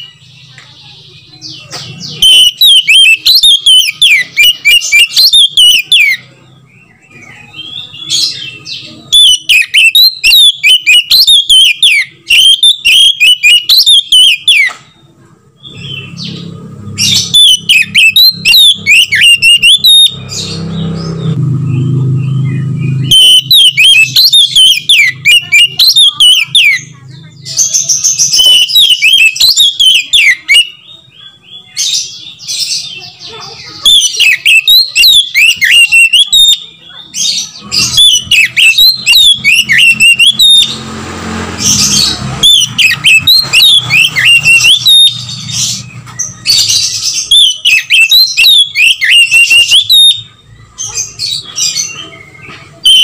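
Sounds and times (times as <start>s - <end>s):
bird singing whistled phrases: 1.2s - 14.8s, 15.6s - 20.6s, 21.8s - 33.1s, 33.7s - 40.8s, 41.7s - 53.0s.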